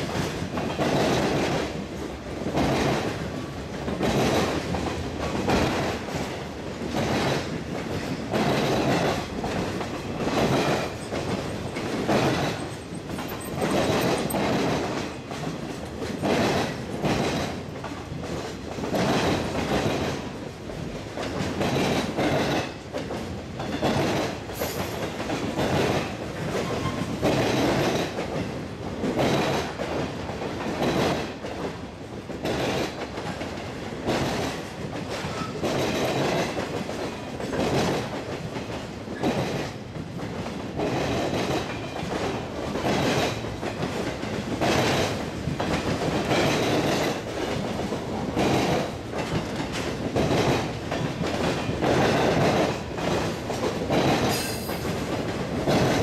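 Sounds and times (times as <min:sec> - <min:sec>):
clickety-clack of train wheels: 0:00.0 - 0:56.0
freight train rumbling past: 0:00.0 - 0:56.0.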